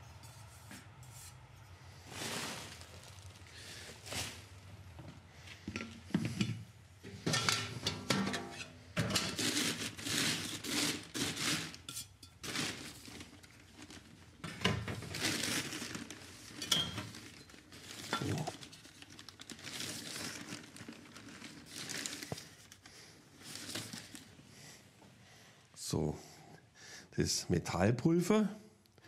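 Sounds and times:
scoop scraping in metal containers: 7.0 - 13.0.

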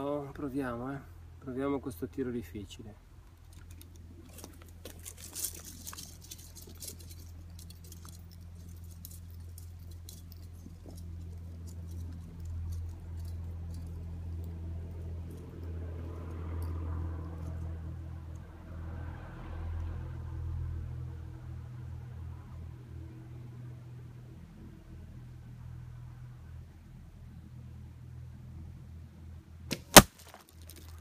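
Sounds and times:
footsteps crunching on dry leaves: 29.8 - 31.0.

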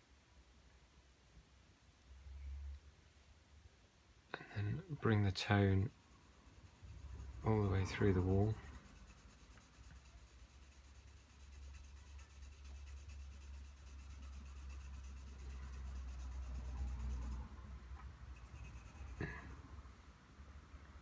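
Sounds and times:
pencil scratching on paper: 5.8 - 17.4, 18.3 - 19.6.

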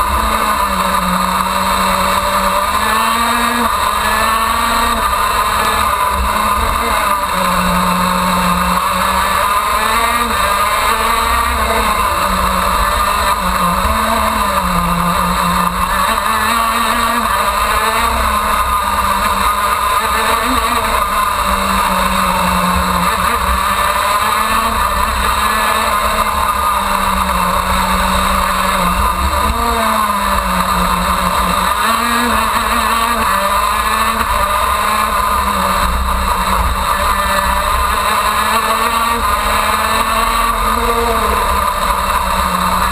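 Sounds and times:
kart engine racing: 0.0 - 42.9.

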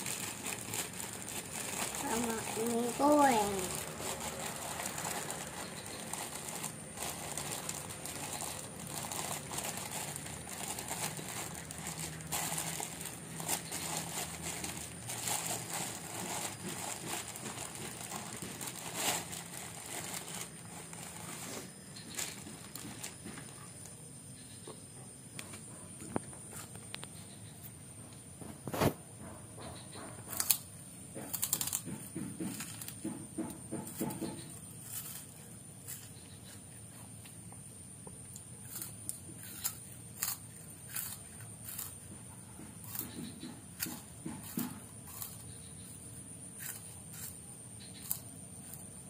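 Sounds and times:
plastic bag crinkling: 0.0 - 23.2.

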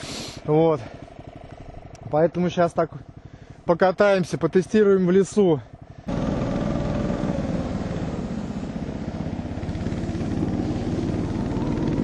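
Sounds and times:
snowmobile engine running: 2.4 - 12.0.

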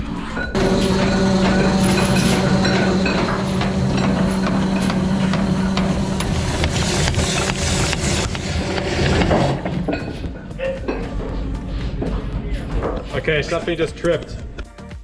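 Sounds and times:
anchor chain clanking: 0.5 - 8.2
windlass motor hum: 0.5 - 13.0.

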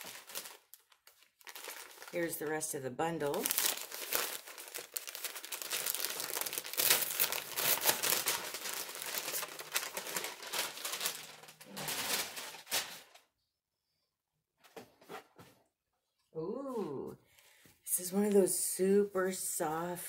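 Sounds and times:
cardboard box crinkling and rustling: 0.0 - 13.0.

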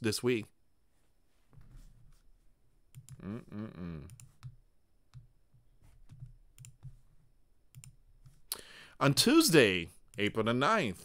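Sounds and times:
man humming: 3.1 - 4.2
computer mouse clicks: 6.1 - 7.0, 7.7 - 8.4.

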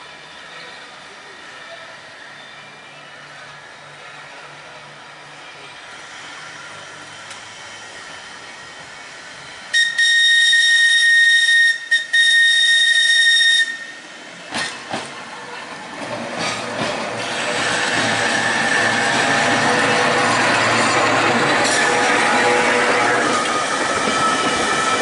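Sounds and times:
tram running noise: 0.0 - 25.0
tram warning whistle: 9.6 - 14.8, 17.2 - 25.0.

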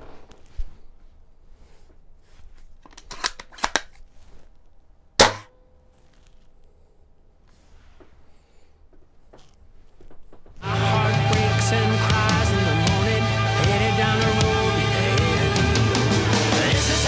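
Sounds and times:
rifle bolt clicks: 2.9 - 4.0
airsoft rifle shot crack: 5.2 - 5.6.

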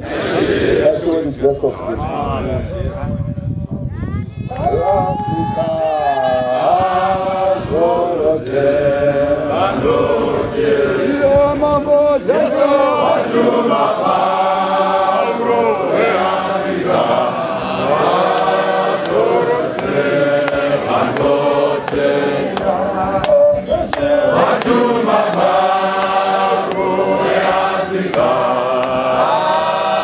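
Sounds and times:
congregation singing a hymn: 0.0 - 1.3, 6.4 - 11.6, 12.2 - 30.0
sharp taps keeping time: 18.3 - 29.7.

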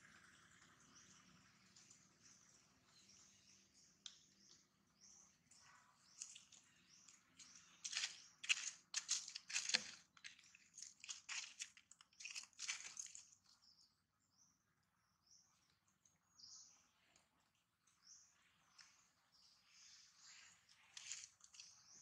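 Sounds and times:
monkey crunching: 6.2 - 13.4.

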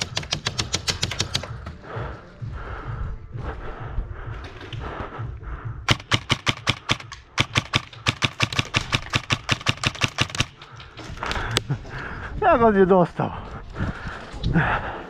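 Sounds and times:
airsoft gun firing: 5.9 - 10.6.

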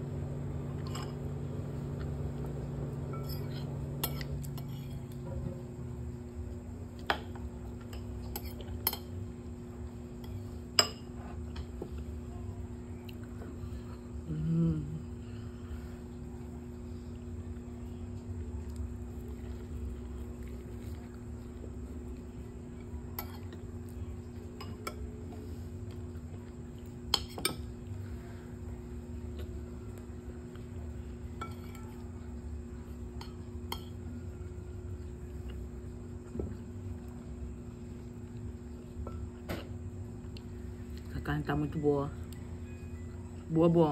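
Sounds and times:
steady low hum: 0.0 - 43.9
spoon clinking against ceramic bowl: 31.4 - 32.0.

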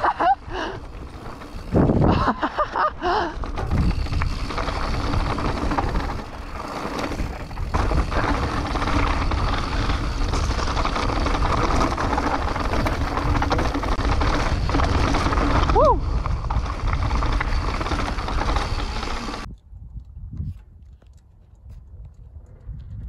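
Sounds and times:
tyres rattling on loose stones: 0.0 - 19.5
wind rush on microphone: 0.0 - 23.0.

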